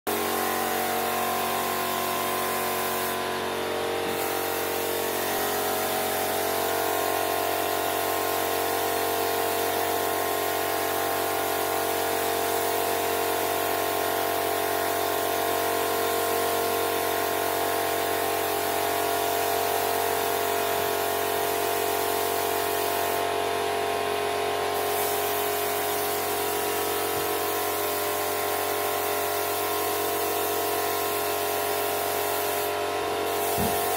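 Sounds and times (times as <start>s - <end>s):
spray gun hissing: 0.1s - 3.4s, 4.0s - 8.4s, 21.7s - 23.3s, 24.7s - 33.9s
compressor motor hum: 33.2s - 33.9s.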